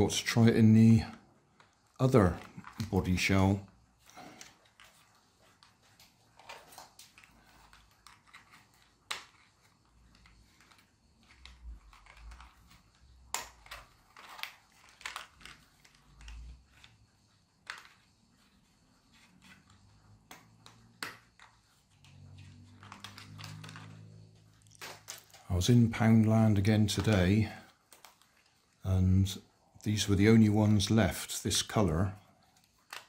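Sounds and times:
plastic parts rattling: 0:00.1 - 0:18.6, 0:19.2 - 0:28.8
plastic clicks: 0:01.1 - 0:03.2, 0:04.2 - 0:17.0.

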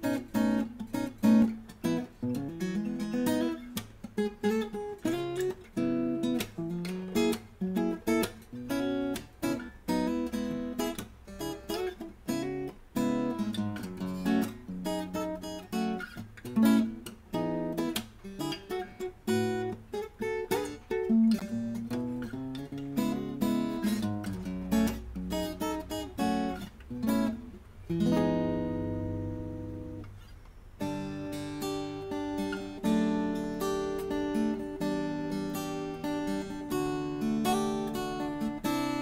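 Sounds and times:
fingerstyle acoustic guitar: 0:00.0 - 0:39.0.

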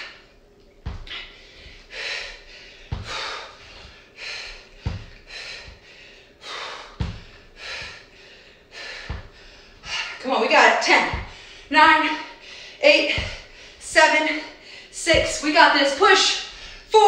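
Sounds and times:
foot thumping on floor: 0:00.8 - 0:01.9, 0:02.8 - 0:05.9, 0:06.9 - 0:08.0, 0:08.9 - 0:10.1, 0:10.8 - 0:12.2, 0:13.1 - 0:14.1, 0:15.0 - 0:15.5
woman breathing hard: 0:01.0 - 0:10.2, 0:11.2 - 0:13.8, 0:14.4 - 0:15.0, 0:16.4 - 0:16.9.

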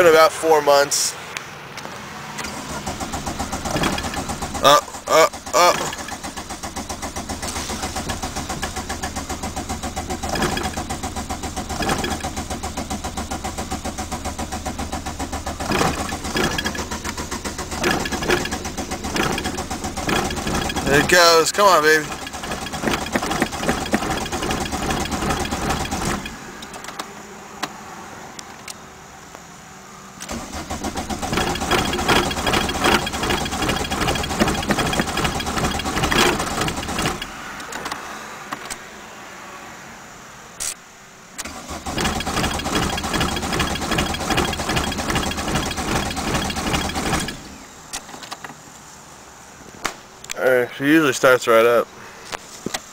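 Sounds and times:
diesel engine cranking on starter: 0:02.3 - 0:27.8, 0:30.2 - 0:38.8, 0:41.3 - 0:48.6.

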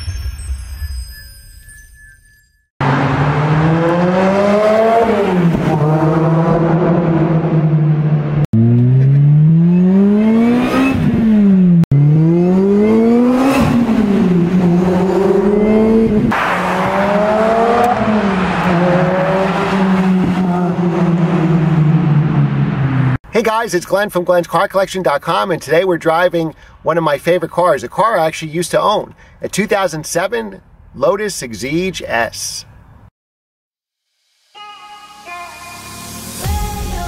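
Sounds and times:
car engine accelerating hard: 0:02.8 - 0:23.2.

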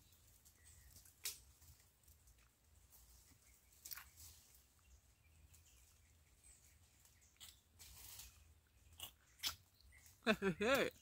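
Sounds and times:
mouth biting and sucking fruit: 0:08.8 - 0:09.7.

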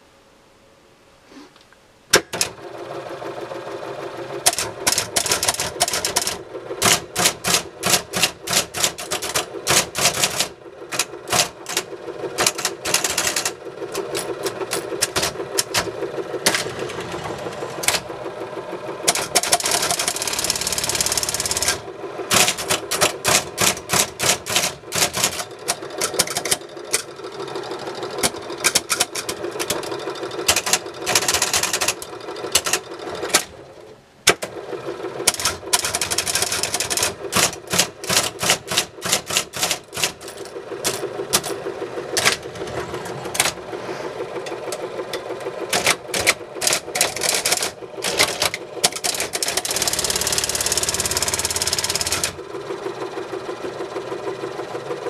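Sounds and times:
rapid mechanical clatter: 0:02.1 - 0:55.0
typewriter motor humming: 0:02.1 - 0:55.0
typewriter key strikes: 0:04.4 - 0:16.8, 0:19.1 - 0:27.1, 0:28.2 - 0:33.5, 0:35.3 - 0:41.6, 0:45.7 - 0:52.4.

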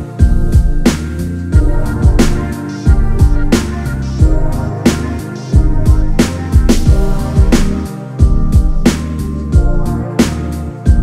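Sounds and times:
sustained instrumental tones: 0:00.0 - 0:08.9
drum beat: 0:00.2 - 0:01.0, 0:01.6 - 0:09.0.

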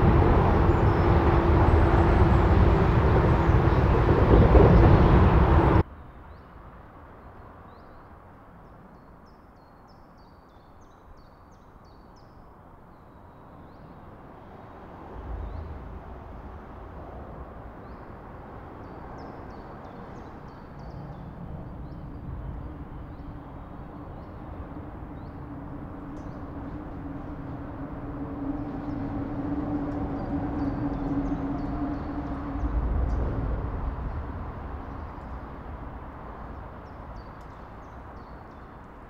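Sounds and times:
heavy vehicle droning: 0:00.0 - 0:05.8, 0:22.2 - 0:37.1
road traffic: 0:00.0 - 0:08.6, 0:13.4 - 0:39.0.

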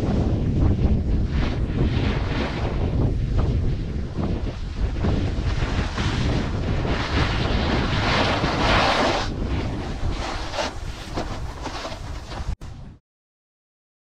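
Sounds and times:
low rumble: 0:00.0 - 0:13.0
wind buffeting microphone: 0:00.0 - 0:13.0
snowboard scraping packed snow: 0:00.1 - 0:03.6, 0:04.2 - 0:12.6.

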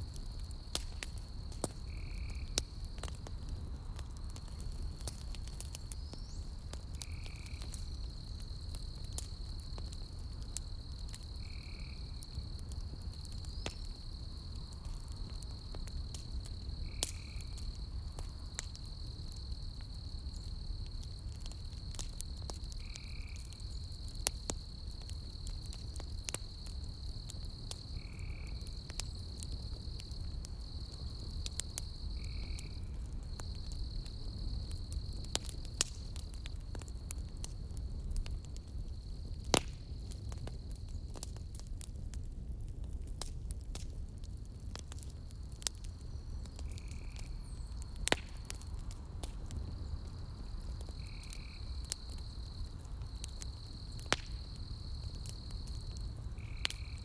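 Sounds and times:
campfire crackling and popping: 0:00.0 - 0:57.0
insect trill: 0:01.4 - 0:02.6, 0:05.9 - 0:12.6, 0:13.3 - 0:37.0, 0:45.3 - 0:48.0, 0:49.6 - 0:57.0.

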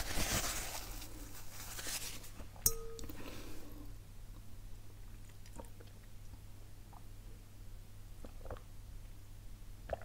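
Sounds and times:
paper napkin rustling: 0:00.0 - 0:02.4
drinking glass clink: 0:02.7 - 0:03.3.

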